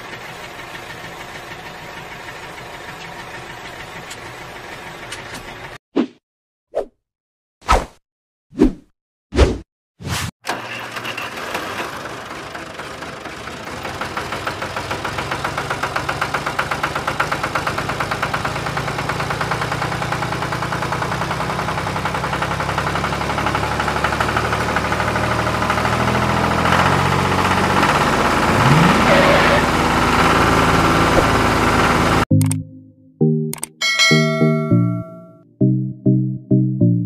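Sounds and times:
tractor diesel engine knocking: 0.0 - 5.2, 10.4 - 32.2.

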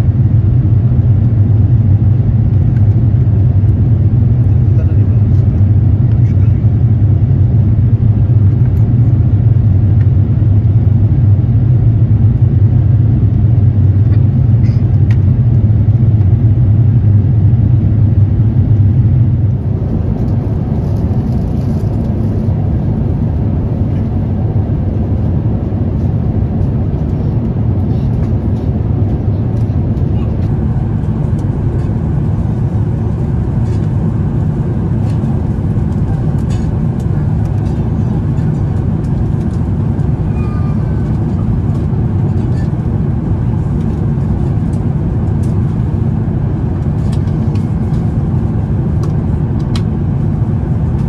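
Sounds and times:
airplane cabin engine rumble: 0.0 - 51.0.

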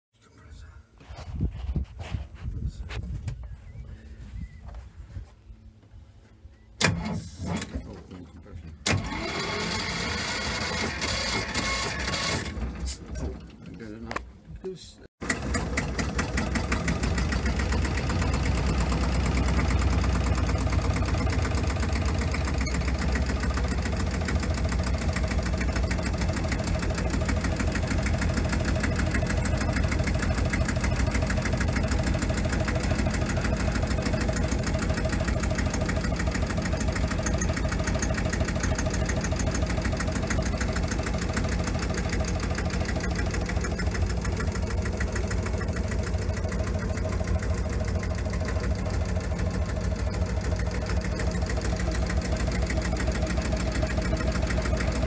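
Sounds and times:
boat engine idling: 15.2 - 55.0.

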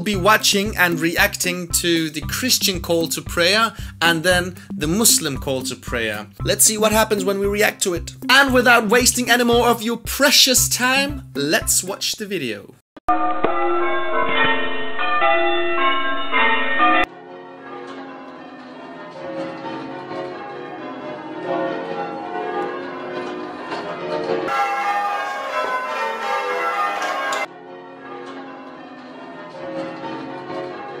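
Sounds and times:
church bells ringing: 13.1 - 18.4, 21.7 - 30.9.

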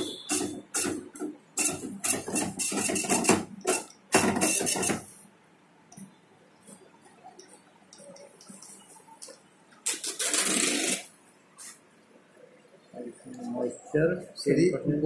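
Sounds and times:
dot-matrix printer clattering: 0.3 - 5.1.

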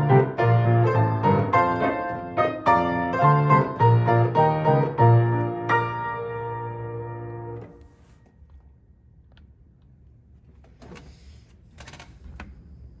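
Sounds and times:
piano chord ringing: 0.0 - 7.8.

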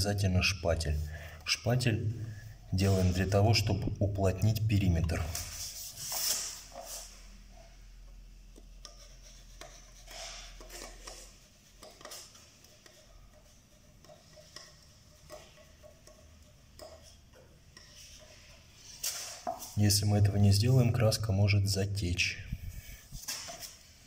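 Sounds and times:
putty knife scraping tape: 8.8 - 19.8.

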